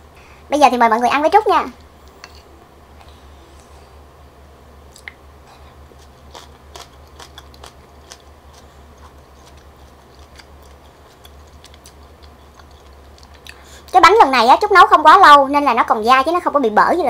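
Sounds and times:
faint low hum: 0:00.0 - 0:17.0
person chewing with mouth clicks: 0:04.9 - 0:05.2, 0:06.0 - 0:13.8.

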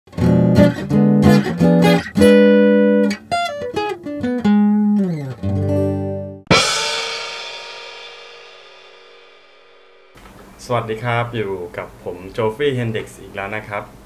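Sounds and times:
guitar jingle: 0:00.1 - 0:10.2
cymbal crash: 0:06.5 - 0:10.2.

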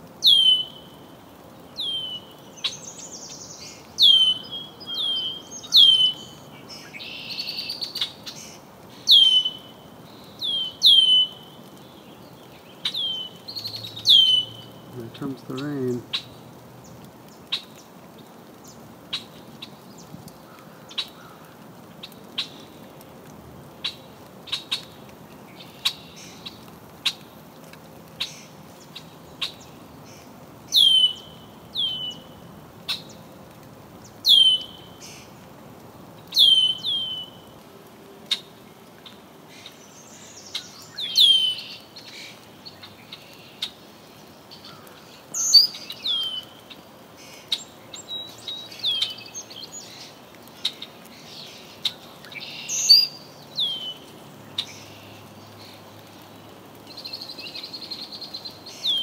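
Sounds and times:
birds calling with descending notes: 0:01.6 - 0:17.4.

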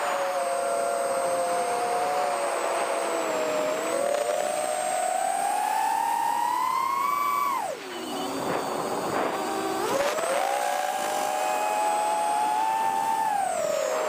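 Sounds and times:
quadcopter motors whining: 0:00.0 - 0:14.0.

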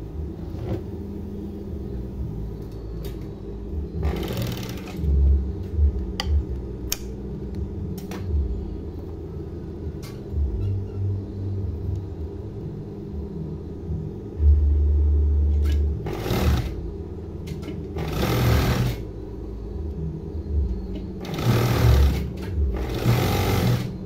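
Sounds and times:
sewing machine motor humming: 0:04.0 - 0:05.2, 0:16.0 - 0:16.9, 0:18.0 - 0:19.0, 0:21.2 - 0:24.0.

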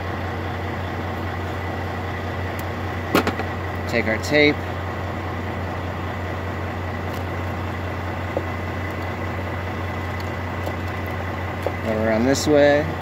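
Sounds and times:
truck diesel engine idling: 0:00.0 - 0:13.0.

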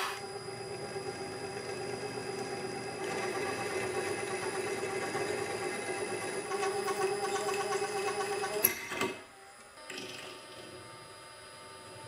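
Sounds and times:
drill press drilling metal: 0:00.0 - 0:00.3.

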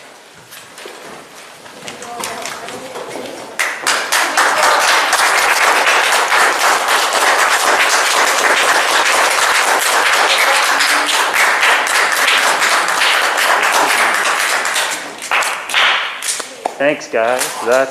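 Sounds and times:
audience applauding: 0:03.6 - 0:16.4.

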